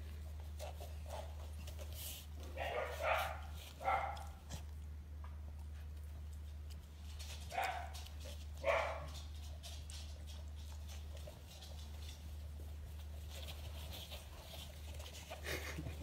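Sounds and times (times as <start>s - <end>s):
low steady hum: 0.0s - 16.0s
puppy yipping barks: 2.6s - 4.4s, 7.5s - 8.0s, 8.6s - 9.1s.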